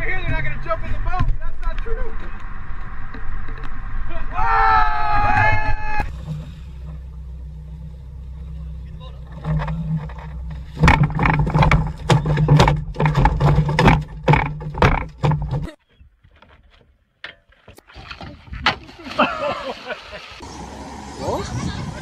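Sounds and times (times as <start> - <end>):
outboard motor running: 6.1 - 15.7, 20.4 - 22.0
loud knocks and bangs: 10.7 - 15.7.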